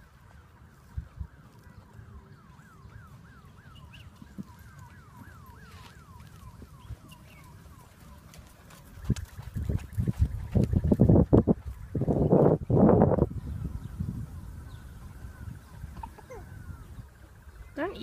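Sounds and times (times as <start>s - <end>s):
low wind rumble: 0.0s - 18.0s
faint siren yelping: 0.2s - 10.2s, 13.5s - 17.2s.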